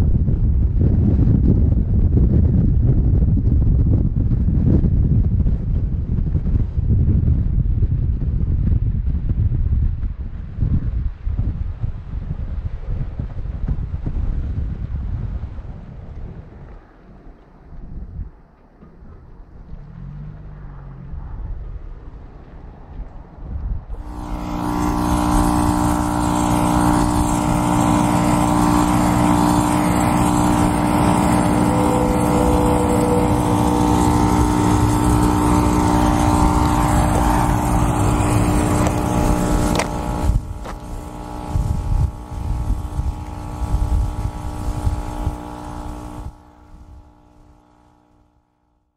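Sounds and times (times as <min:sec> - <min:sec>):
vehicle driving on dirt road: 0:12.0 - 0:48.3.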